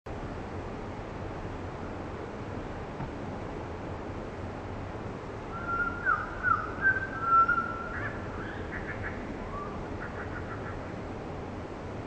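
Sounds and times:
bird whistled notes: 5.5s - 8.6s.

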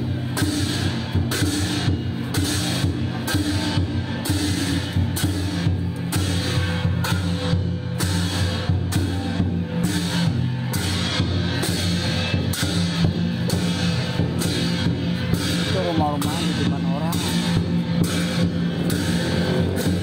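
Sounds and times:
drum-led music: 0.0s - 20.0s
sharp drum strike: 0.0s - 20.0s.

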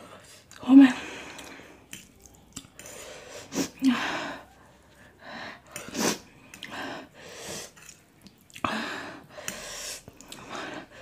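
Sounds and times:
chewing: 1.3s - 3.0s, 7.7s - 8.7s
sharp breaths and hisses: 9.4s - 11.0s.

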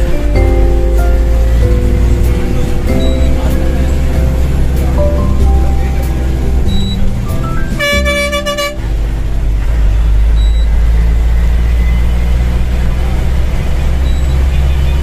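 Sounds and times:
vehicle driving rumble: 0.0s - 15.0s
vehicle horn: 7.7s - 9.2s.

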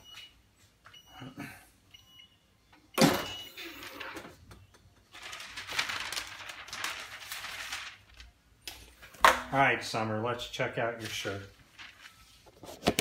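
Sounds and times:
rustling crackling noise: 5.1s - 8.4s, 10.9s - 13.0s.

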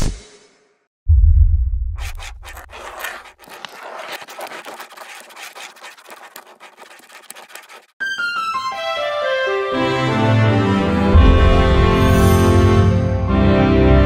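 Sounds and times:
pencil sketching on paper: 2.0s - 8.5s.

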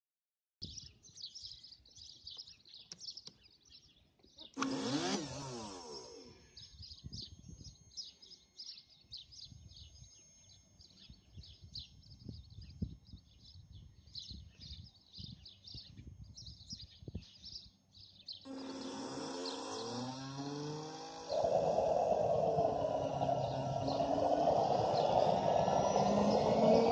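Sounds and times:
birds chirping: 0.6s - 26.9s
turbine starter whirring: 4.6s - 8.4s, 18.5s - 26.9s.

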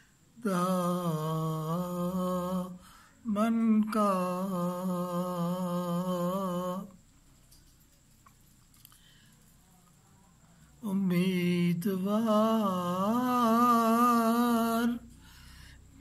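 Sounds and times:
elderly man singing held notes: 0.0s - 7.1s, 10.6s - 16.0s.

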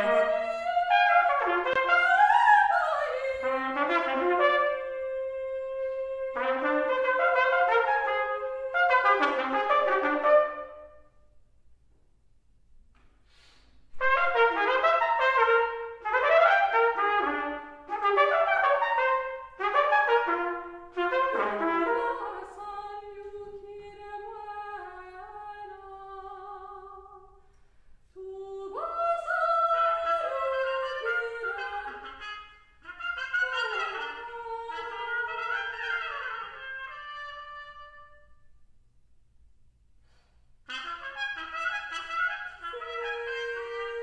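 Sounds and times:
solo trumpet playing: 0.0s - 11.4s, 14.0s - 23.2s, 29.2s - 38.6s, 40.6s - 44.0s.

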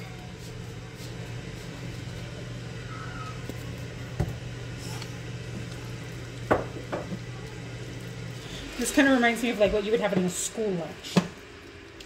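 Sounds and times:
kitchen appliance humming: 0.0s - 12.0s
sharp knocks at stove: 6.5s - 7.2s.

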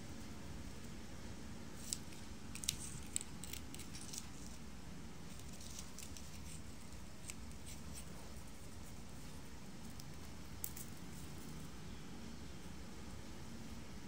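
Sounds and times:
steady low hum: 0.0s - 14.0s
fibres crackling in fingers: 1.8s - 11.7s.

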